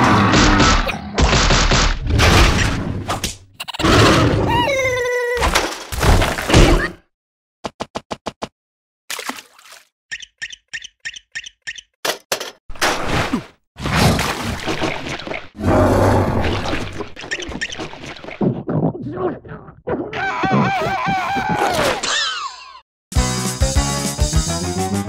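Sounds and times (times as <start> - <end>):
cartoon crashes and thuds: 0.0 - 3.2.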